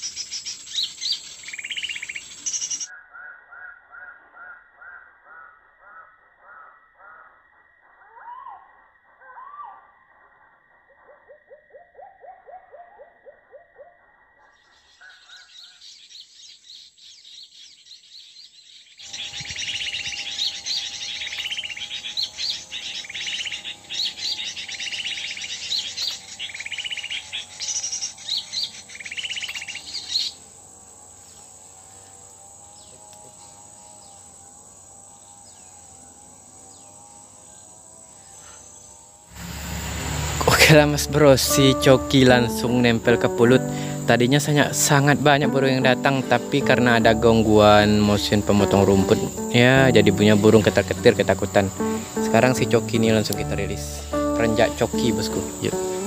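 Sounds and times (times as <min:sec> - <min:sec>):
small birds chirping: 0:00.0 - 0:40.8, 0:41.5 - 0:56.0
high steady whine: 0:39.3 - 0:43.3
steady drone: 0:39.3 - 0:56.0.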